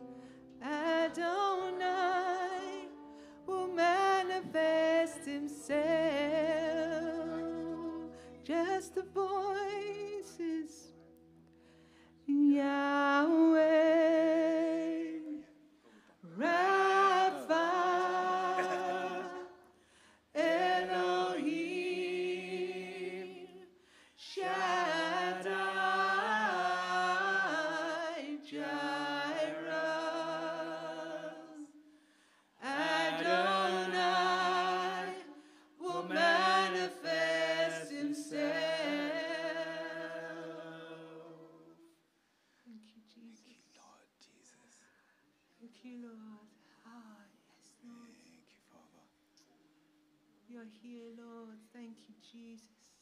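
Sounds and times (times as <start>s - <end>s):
woman singing lead: 0.0s - 10.9s, 12.3s - 15.6s, 16.2s - 19.7s, 20.4s - 23.6s, 24.2s - 31.8s, 32.6s - 40.2s
voices singing along: 16.3s - 31.9s, 32.6s - 41.8s.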